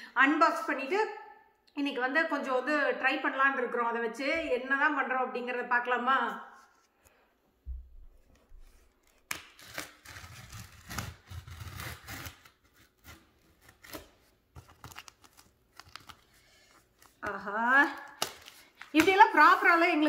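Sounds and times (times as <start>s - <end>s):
knife slicing packing tape: 9.0s - 16.2s.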